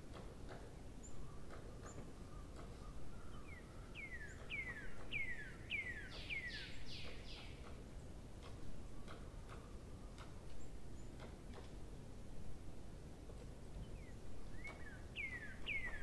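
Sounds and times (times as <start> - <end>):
low background noise: 0.0 - 16.0.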